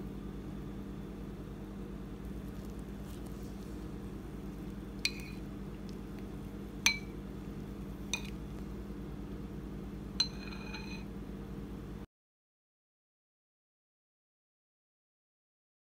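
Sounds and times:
spoon clinking against ceramic bowl: 5.0s - 5.5s, 6.8s - 7.2s, 8.1s - 8.4s, 10.2s - 11.1s.

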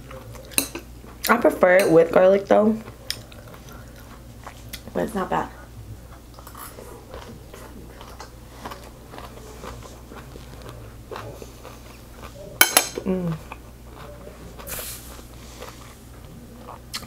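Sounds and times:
person chewing food: 2.8s - 5.0s, 5.6s - 17.0s
person humming: 13.0s - 13.5s.

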